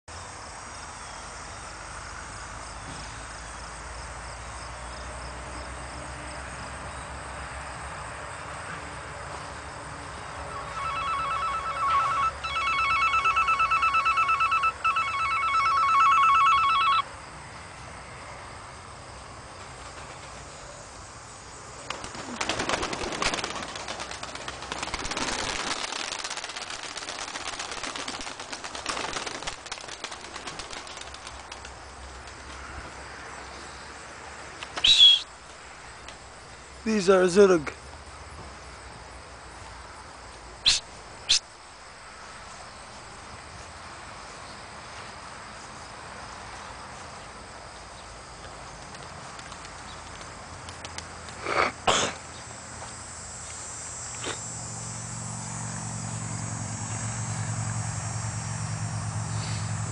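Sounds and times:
telephone ringing: 0:10.5 - 0:17.1
pigeon wings flapping: 0:19.6 - 0:20.6, 0:21.8 - 0:32.5, 0:48.7 - 0:51.4.

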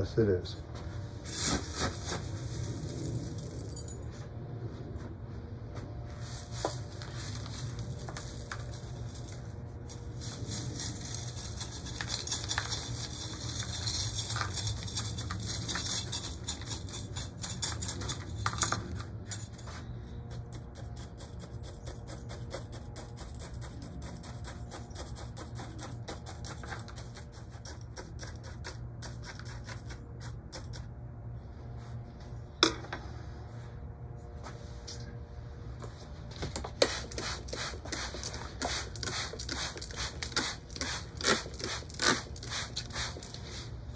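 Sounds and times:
soil grains pattering and rattling: 0:01.3 - 0:03.8, 0:06.2 - 0:19.0, 0:36.6 - 0:43.7.

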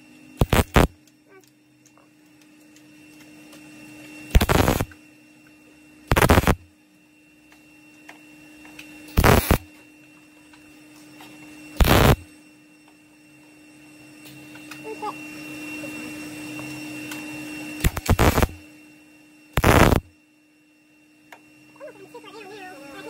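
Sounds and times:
steady hum: 0:00.0 - 0:23.0
welder arc crackling: 0:00.4 - 0:01.0, 0:04.3 - 0:04.9, 0:06.1 - 0:06.6, 0:09.2 - 0:09.6, 0:11.8 - 0:12.2, 0:17.8 - 0:18.6, 0:19.6 - 0:20.1.

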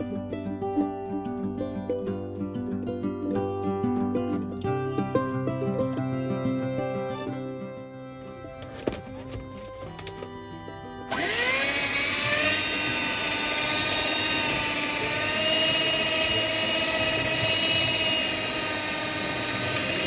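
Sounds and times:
electric hand mixer whining: 0:08.6 - 0:20.0.

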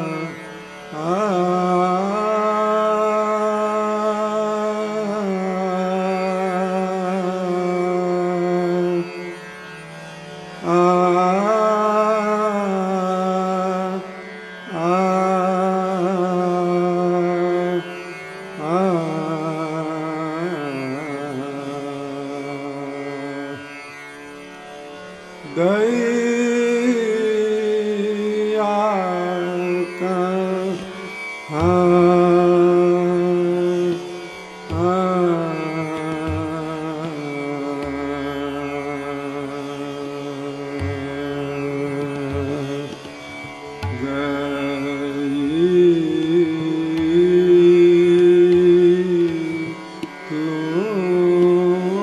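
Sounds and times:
classical solo singing: 0:10.6 - 0:23.6, 0:25.5 - 0:52.0.

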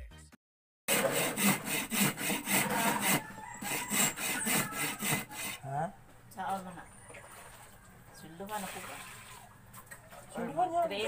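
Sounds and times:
hand saw cutting wood: 0:00.9 - 0:05.7.

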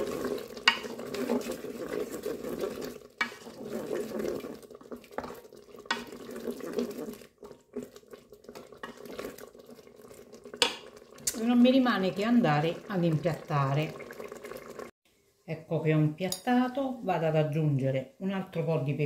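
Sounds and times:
spoon stirring thick sauce: 0:00.0 - 0:11.4.

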